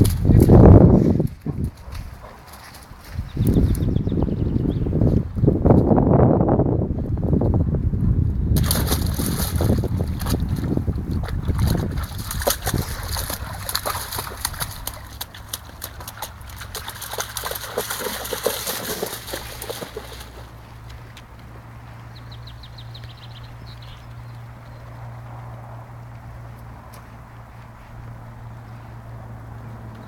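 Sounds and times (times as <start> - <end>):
dog splashing through water: 0.0 - 3.8, 8.6 - 20.9.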